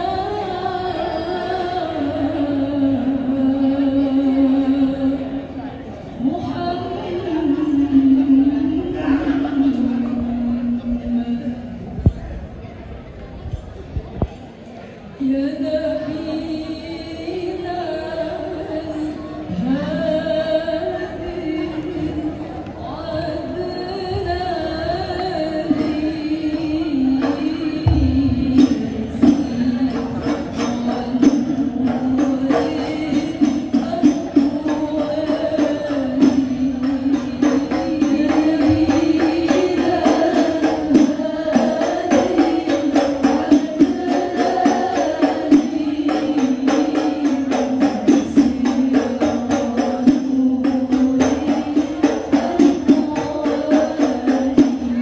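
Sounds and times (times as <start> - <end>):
women singing through a pa: 0.0 - 12.6, 15.0 - 55.0
frame drums beating: 27.2 - 55.0.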